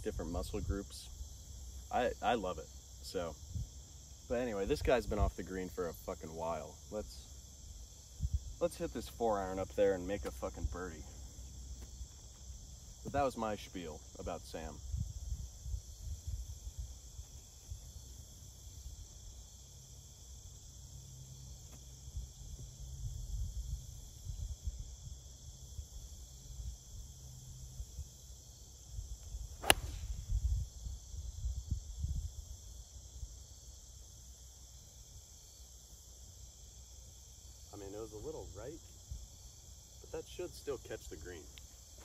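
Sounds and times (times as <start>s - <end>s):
crickets chirring: 0.0s - 42.0s
golf club striking ball: 29.6s - 30.2s.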